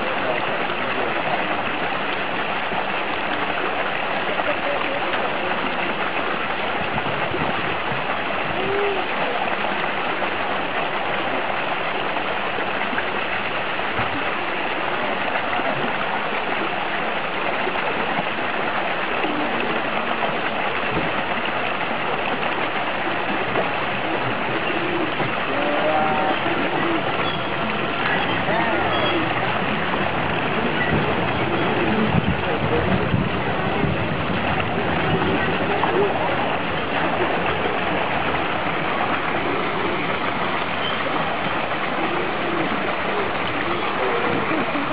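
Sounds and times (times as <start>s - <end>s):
seal swimming in water: 0.0s - 44.9s
water pouring and splashing into pool: 0.0s - 44.9s.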